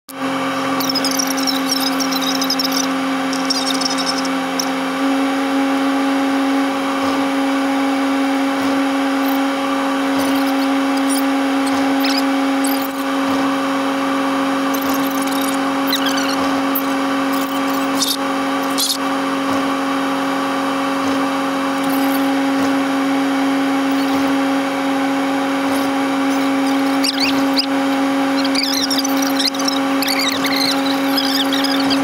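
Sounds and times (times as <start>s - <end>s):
high squeaks: 0.7s - 4.8s, 10.1s - 13.2s, 14.6s - 19.0s, 21.7s - 22.4s, 23.8s - 24.4s, 25.6s - 32.0s.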